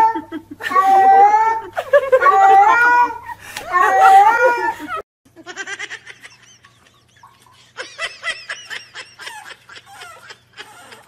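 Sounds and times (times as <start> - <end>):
cat yowling: 0.0 - 4.8
person giggling: 0.1 - 11.0.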